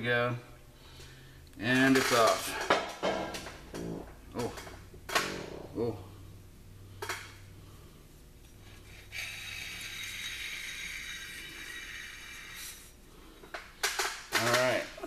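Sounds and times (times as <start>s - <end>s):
spray hissing: 9.1s - 13.0s.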